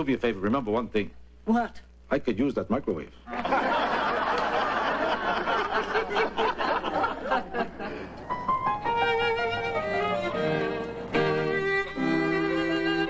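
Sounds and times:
audience laughter: 3.3s - 8.5s
violin melody: 8.3s - 13.0s.

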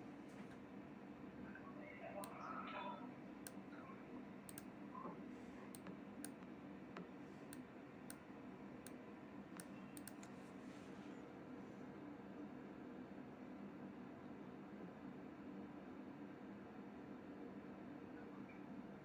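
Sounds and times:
low room hum: 0.0s - 19.0s
computer mouse clicking: 4.4s - 4.7s, 5.6s - 10.4s.

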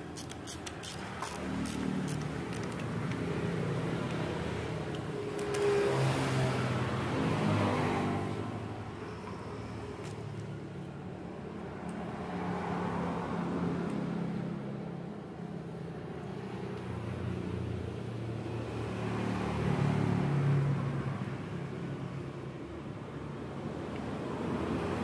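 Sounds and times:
passing vehicle engine hum: 1.0s - 9.0s.

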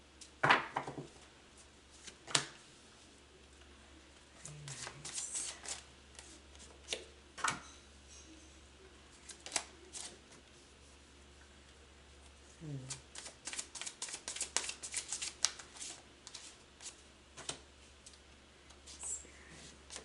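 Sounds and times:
card flicks and slaps: 2.2s - 2.6s
cards shuffling: 4.6s - 7.1s, 9.2s - 10.2s, 12.9s - 17.6s.

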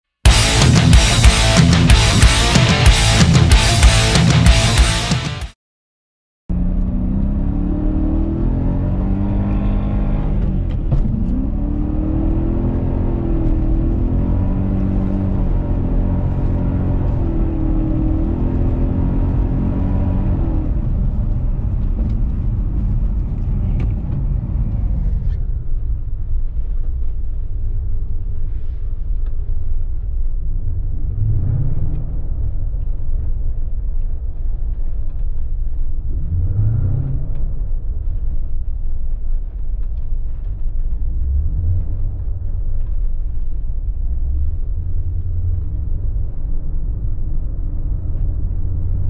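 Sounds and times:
car engine revving: 0.3s - 5.5s, 6.5s - 25.4s, 30.8s - 33.0s, 36.1s - 49.0s.

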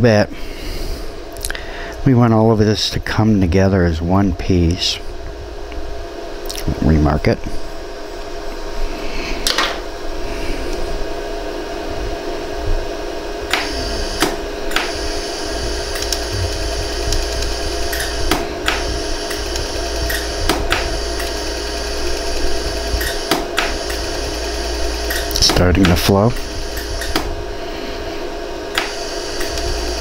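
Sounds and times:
steady machine hum: 0.0s - 30.0s
laser welder clicks: 13.5s - 15.2s, 15.9s - 27.3s, 28.7s - 30.0s.

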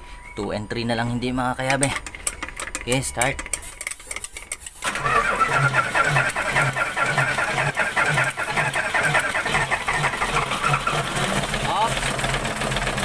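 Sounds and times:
diesel engine starting: 4.8s - 13.0s.

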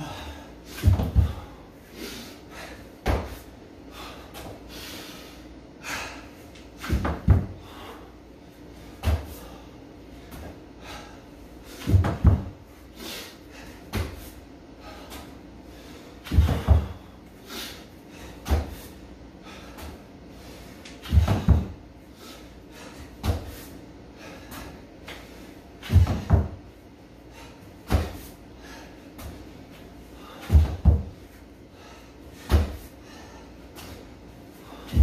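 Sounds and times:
thuds on gym floor mat: 0.8s - 1.4s, 6.8s - 7.6s, 11.8s - 12.6s, 16.3s - 17.0s, 21.0s - 21.8s, 25.8s - 26.6s, 30.4s - 31.2s.

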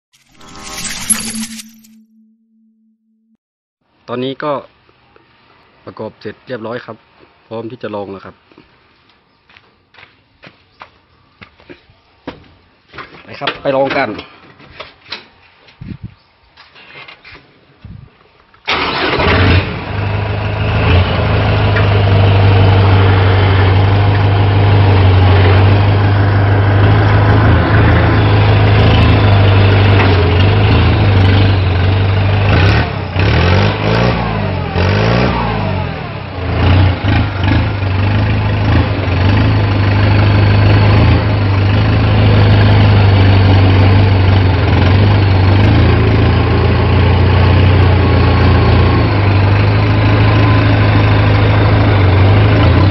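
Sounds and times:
tractor diesel engine running: 18.7s - 52.9s.

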